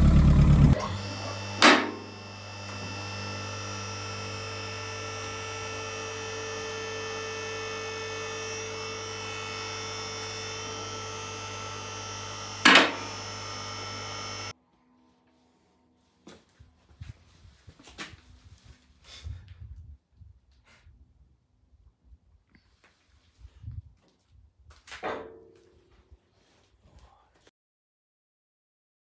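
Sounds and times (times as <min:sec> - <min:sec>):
hydraulic pump motor running: 0:00.0 - 0:14.5.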